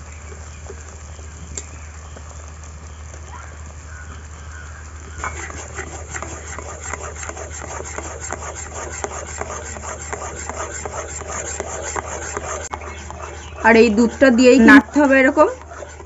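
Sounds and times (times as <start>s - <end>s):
metal spatula scraping a wok: 5.2s - 16.0s.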